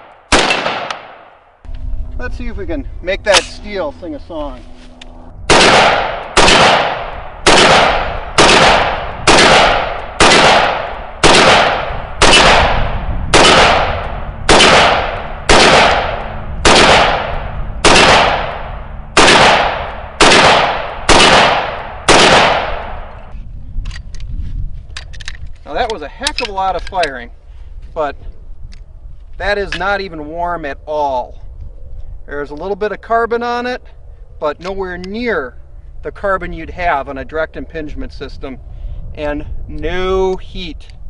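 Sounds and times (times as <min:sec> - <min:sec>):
rifle single shots: 0:00.0 - 0:01.4, 0:05.5 - 0:23.3.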